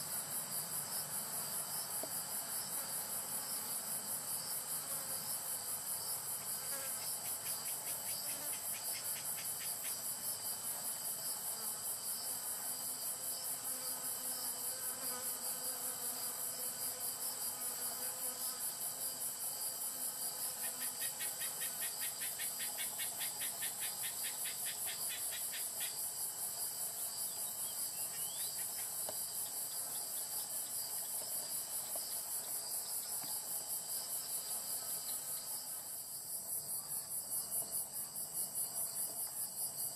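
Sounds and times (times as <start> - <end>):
insect chorus: 0.0 - 39.9
insect ticking trill: 6.7 - 10.4, 20.5 - 26.3.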